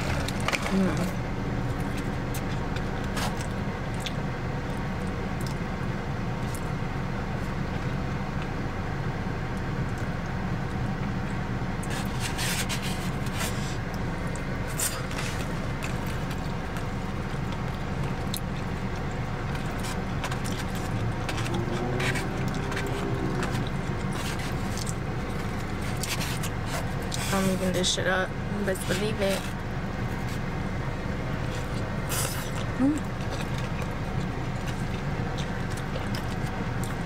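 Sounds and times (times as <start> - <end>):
person chewing: 0.0 - 5.6, 11.8 - 27.3, 29.4 - 37.0
low car interior hum: 0.0 - 37.0.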